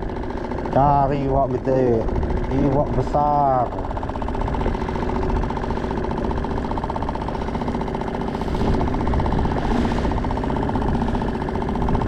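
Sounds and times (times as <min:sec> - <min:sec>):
choppy water: 0:00.0 - 0:12.0
outboard motor running: 0:00.0 - 0:12.0.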